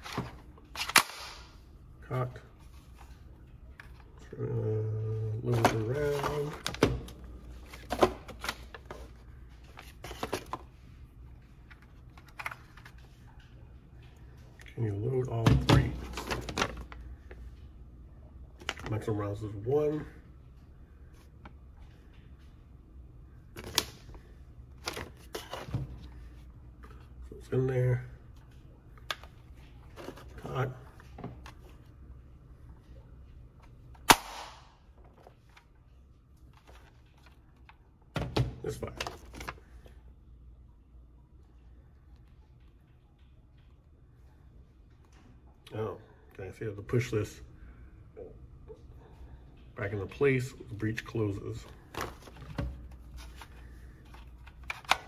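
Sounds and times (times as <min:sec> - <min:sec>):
toy blaster firing crack: 0:34.1 - 0:34.7.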